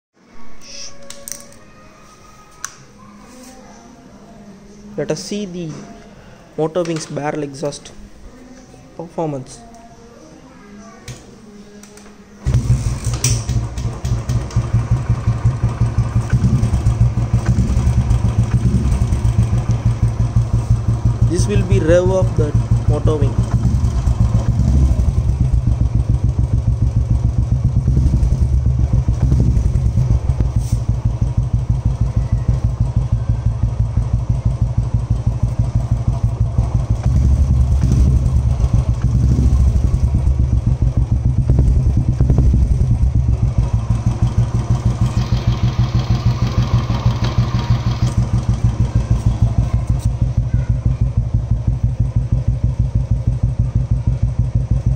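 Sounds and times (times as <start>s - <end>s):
engine throttle blips: 12.5s - 54.9s
motorcycle engine thumping idle: 12.5s - 54.9s.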